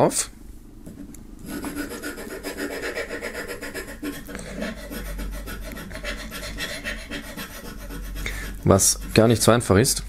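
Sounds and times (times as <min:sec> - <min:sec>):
scratching scratch-off card: 0:01.4 - 0:09.4.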